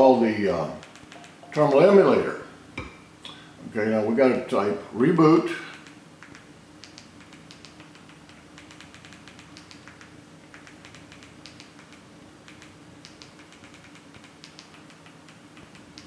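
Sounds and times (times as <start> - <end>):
faint steady hum: 0.0 - 16.0
remote control buttons clicking: 0.8 - 1.8, 5.7 - 16.0.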